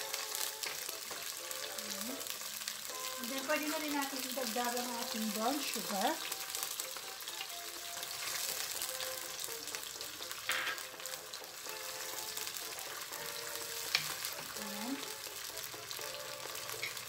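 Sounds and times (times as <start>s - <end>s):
sauce sizzling in a wok: 0.0s - 17.0s
spatula tapping pan: 12.4s - 14.6s.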